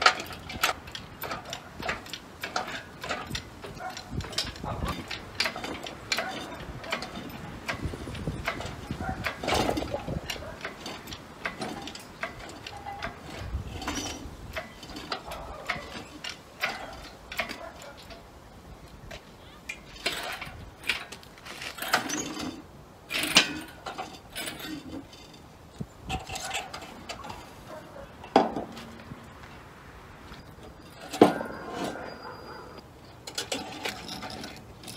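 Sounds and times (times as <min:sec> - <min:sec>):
chain jangling: 0:00.0 - 0:18.3
metal clinks and knocks: 0:00.0 - 0:18.4, 0:19.1 - 0:29.6, 0:30.3 - 0:34.9.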